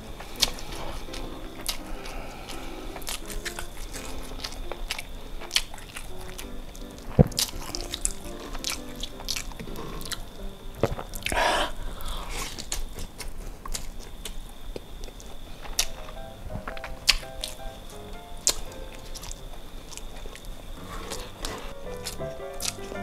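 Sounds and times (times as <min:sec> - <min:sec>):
quiet background music: 0:00.0 - 0:11.9, 0:15.5 - 0:23.0
fingers squishing sticky rice: 0:00.0 - 0:23.0
wet chewing and lip smacks: 0:00.2 - 0:11.4, 0:12.3 - 0:23.0
short breathy hiss: 0:11.3 - 0:12.6.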